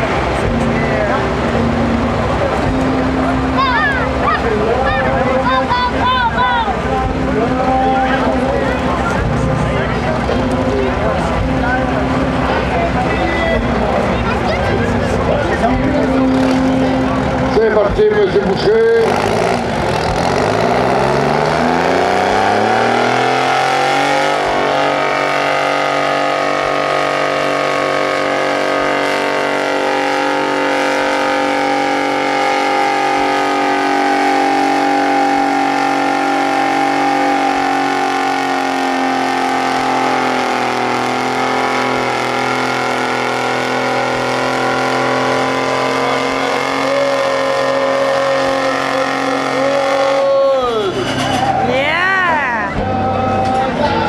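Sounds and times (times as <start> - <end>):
tractor diesel engine revving: 0.0 - 54.0.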